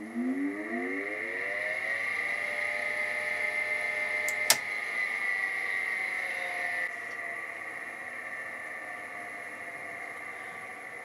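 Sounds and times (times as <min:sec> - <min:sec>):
cooling fan whining: 0:00.0 - 0:11.0
sharp click: 0:04.3 - 0:04.7.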